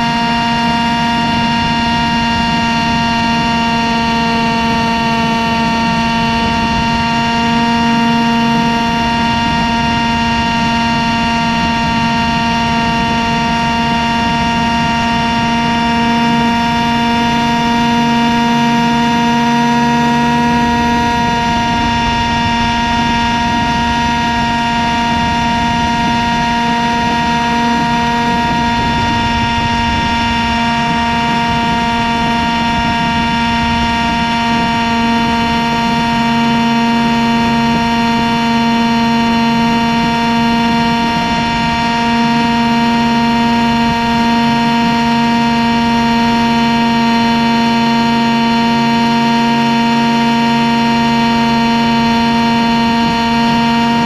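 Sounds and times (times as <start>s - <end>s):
model helicopter rotor whine: 0.0s - 54.0s.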